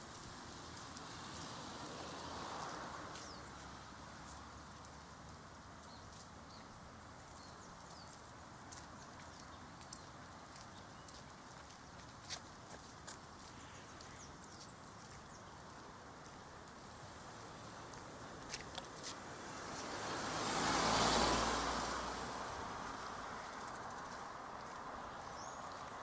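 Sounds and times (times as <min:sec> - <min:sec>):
light ticks: 0:01.8 - 0:16.8.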